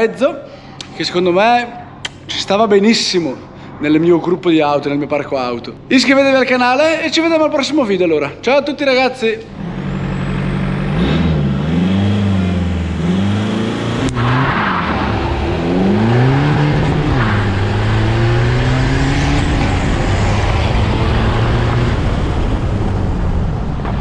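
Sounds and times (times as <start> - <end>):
sharp click: 2.0 - 2.4
diesel van engine accelerating: 9.5 - 24.0
wind and road noise: 9.5 - 24.0.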